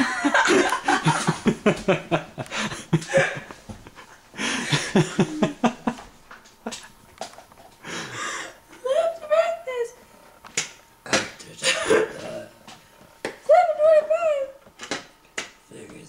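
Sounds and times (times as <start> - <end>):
young woman laughing hard: 0.0 - 6.0.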